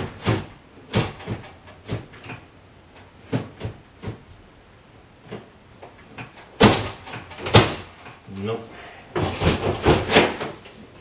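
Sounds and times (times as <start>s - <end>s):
microwave knocking against mounting: 0.0s - 2.5s.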